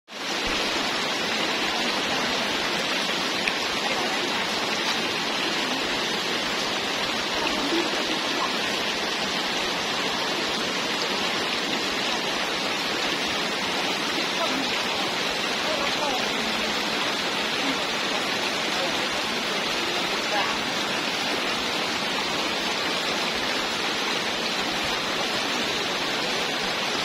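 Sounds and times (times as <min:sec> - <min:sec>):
running water rushing: 0:00.1 - 0:27.0.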